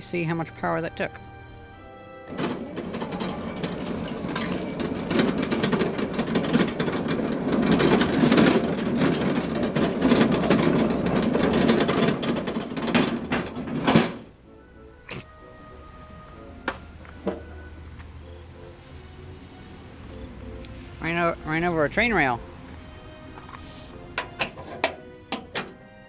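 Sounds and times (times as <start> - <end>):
electric lawn tractor rattling: 2.1 - 14.4.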